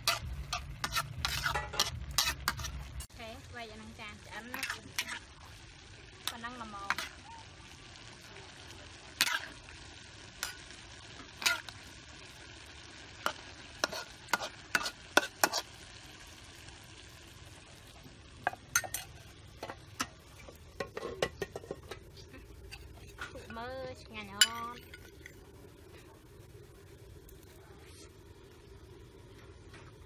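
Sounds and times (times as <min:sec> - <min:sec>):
metal ladle scraping wok: 0:00.0 - 0:03.1, 0:04.3 - 0:05.4, 0:06.2 - 0:07.2, 0:09.2 - 0:09.7, 0:10.4 - 0:11.8, 0:13.2 - 0:15.8, 0:18.4 - 0:23.7
food sizzling in a wok: 0:00.0 - 0:30.0.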